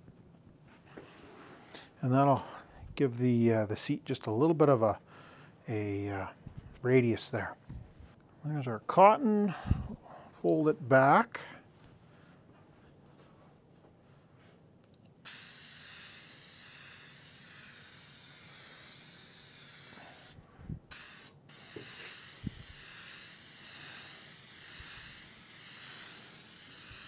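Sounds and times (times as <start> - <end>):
aerosol spray hissing: 15.2 - 27.0.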